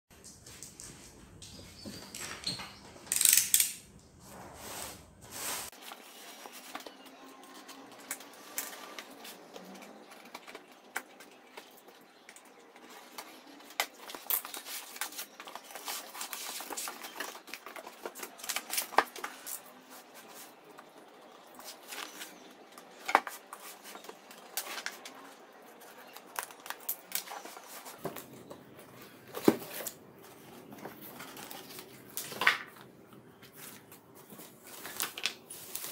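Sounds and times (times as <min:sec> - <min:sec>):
cardboard rustling and scraping: 0:04.2 - 0:07.1, 0:14.0 - 0:20.6, 0:27.2 - 0:32.4.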